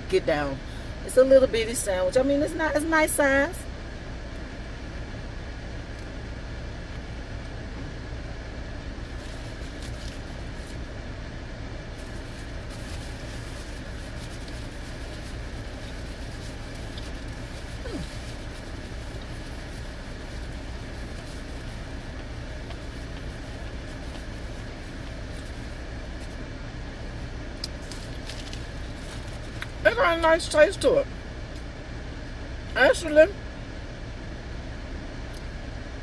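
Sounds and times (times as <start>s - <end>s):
car cabin hum: 0.0s - 36.0s
foil wrapper crinkling: 12.0s - 26.3s, 27.7s - 29.8s.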